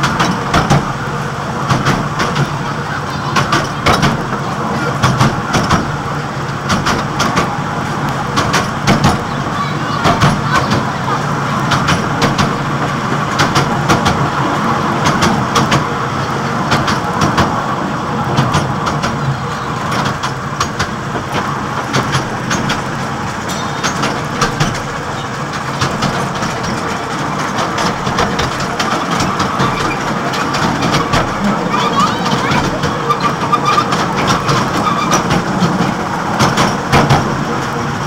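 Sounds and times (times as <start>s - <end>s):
carriages rattling and clicking: 0.0s - 38.0s
wagons rolling on pavement: 0.0s - 38.0s.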